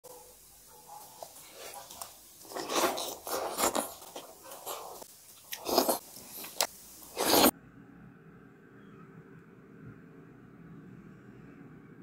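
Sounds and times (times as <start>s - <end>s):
people chewing wet food: 0.9s - 7.5s.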